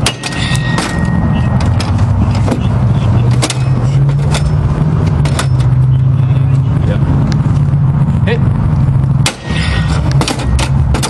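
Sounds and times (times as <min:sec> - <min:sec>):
sharp metal strike ringing: 0:00.0 - 0:01.9
metal bar clanking on padlock: 0:00.0 - 0:02.0, 0:03.3 - 0:04.6, 0:05.2 - 0:05.7.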